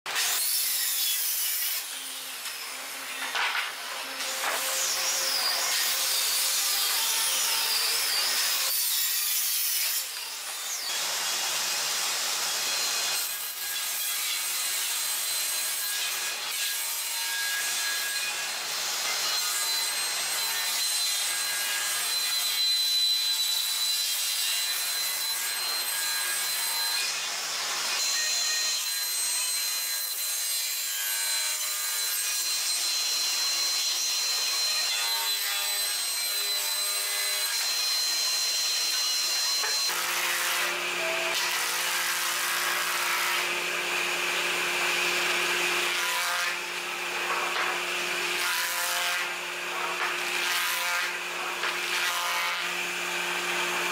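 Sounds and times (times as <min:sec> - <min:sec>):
table saw cutting wood: 0:00.1 - 0:53.9.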